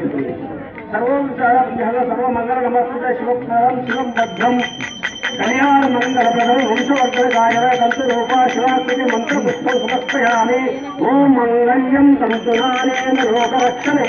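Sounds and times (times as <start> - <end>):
hand bell ringing rapidly: 3.9 - 11.4, 12.3 - 14.0.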